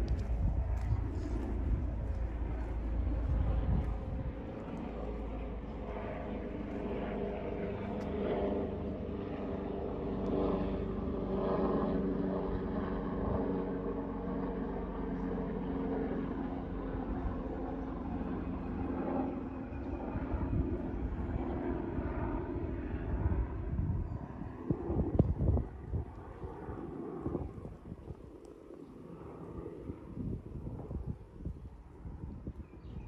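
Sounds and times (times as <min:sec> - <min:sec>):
engine drone: 0:00.0 - 0:09.1
street ambience: 0:00.0 - 0:23.0.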